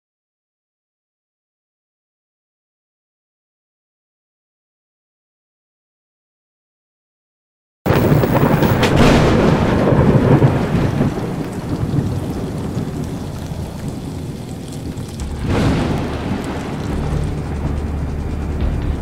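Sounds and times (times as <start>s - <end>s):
steady rain: 7.9s - 19.0s
thunder rumbling: 7.9s - 19.0s.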